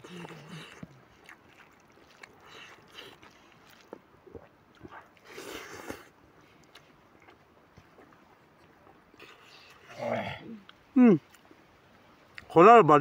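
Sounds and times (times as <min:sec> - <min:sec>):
man chewing food: 0:00.0 - 0:11.6.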